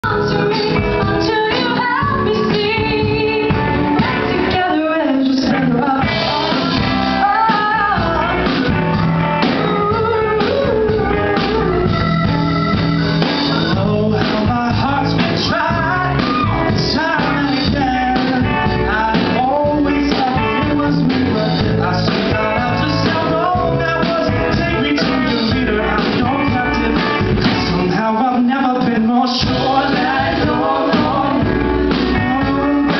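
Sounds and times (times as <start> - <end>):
woman singing: 0.0 - 8.7, 9.5 - 12.7
bass guitar: 0.0 - 32.9
drum kit: 0.0 - 32.9
electric guitar: 0.0 - 32.9
man singing: 4.0 - 8.8, 13.3 - 32.9.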